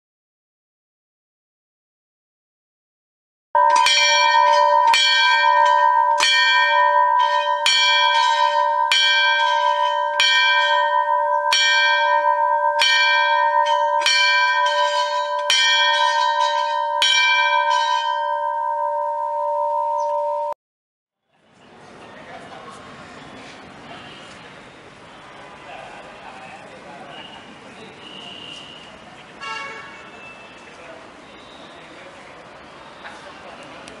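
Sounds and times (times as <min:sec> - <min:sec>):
temple bell ringing: 0:03.6 - 0:20.6.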